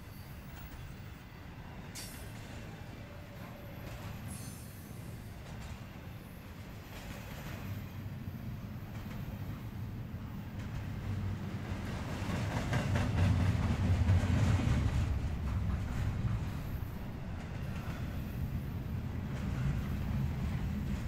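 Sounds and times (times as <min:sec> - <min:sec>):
train wheels rumbling and clattering: 0:00.3 - 0:21.0.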